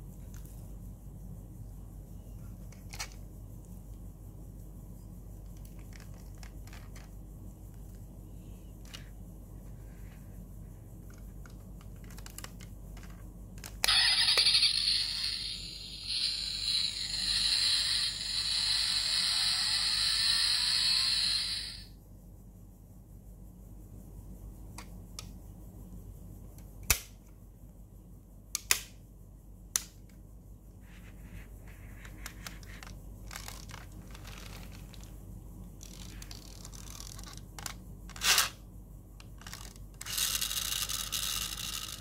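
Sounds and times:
model car parts clicking: 11.1 - 15.3, 39.3 - 42.0
tinny engine sound effect: 13.9 - 21.9.

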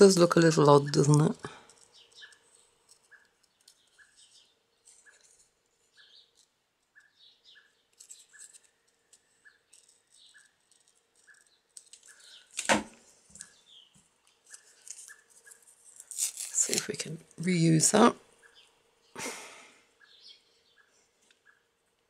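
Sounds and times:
scissors snipping paper: 7.9 - 12.7.

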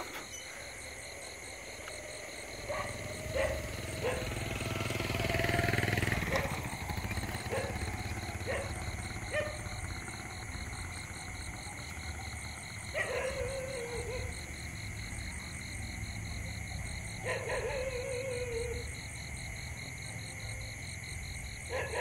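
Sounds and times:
insects pulsing: 0.0 - 22.0
faint barks: 2.5 - 5.0, 6.0 - 9.9, 12.7 - 14.5, 17.1 - 19.0, 21.4 - 22.0.

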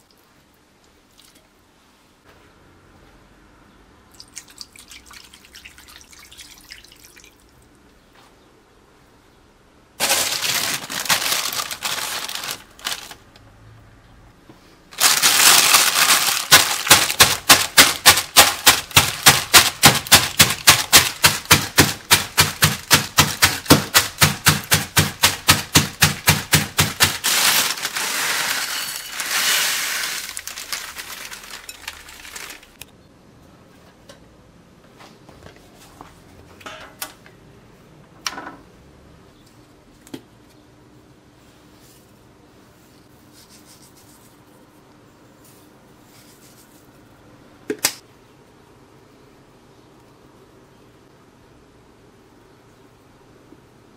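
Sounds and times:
cup pounding cornflakes: 10.0 - 13.1, 15.0 - 32.8
plastic bag rustling: 10.0 - 13.4, 14.9 - 32.8.

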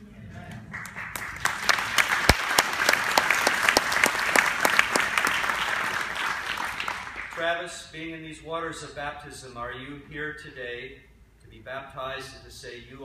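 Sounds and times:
congregation applauding: 0.4 - 7.4.

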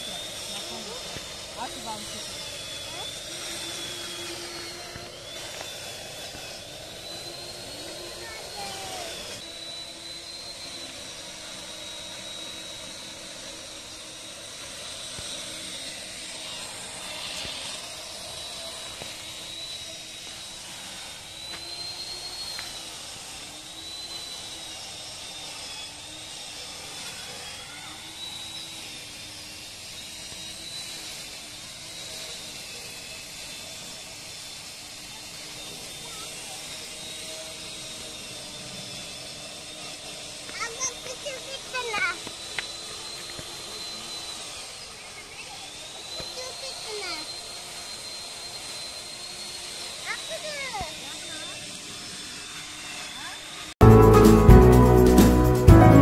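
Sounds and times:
mechanical drone with high whine: 0.0 - 53.6.

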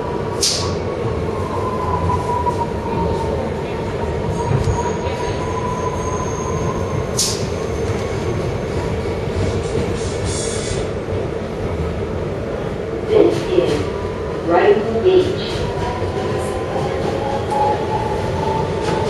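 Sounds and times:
subway train rumble: 0.0 - 19.0.

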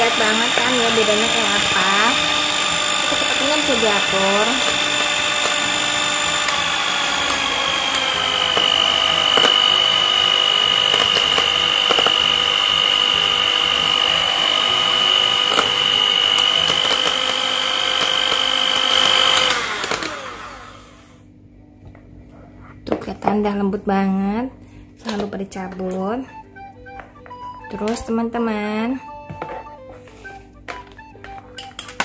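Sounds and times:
electric hand mixer whining: 0.0 - 21.3, 29.0 - 32.0.

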